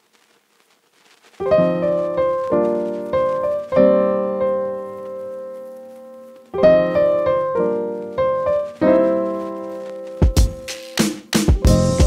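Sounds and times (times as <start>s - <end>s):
piano chords: 1.4s - 12.0s.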